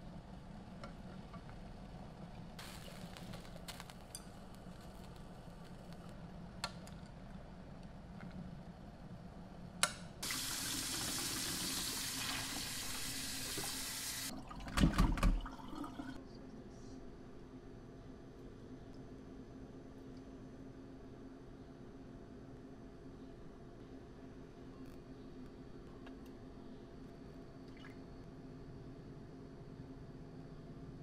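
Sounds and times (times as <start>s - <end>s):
faint steady hum: 0.0s - 31.0s
water rushing into a steel sink: 10.2s - 16.2s.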